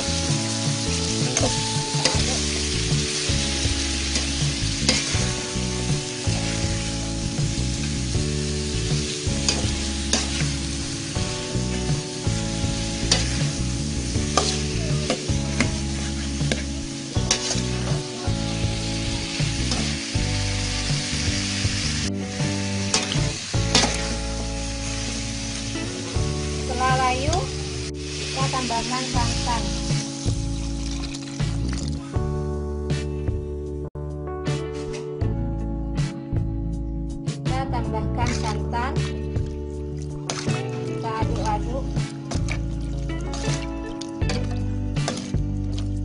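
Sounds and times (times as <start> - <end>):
food sizzling in a wok: 0.0 - 32.2, 39.9 - 46.0
metal spatula scraping a pan: 1.3 - 2.7, 4.0 - 5.3, 9.0 - 10.7, 13.0 - 18.0, 22.9 - 24.2, 40.3 - 40.9, 43.3 - 45.4.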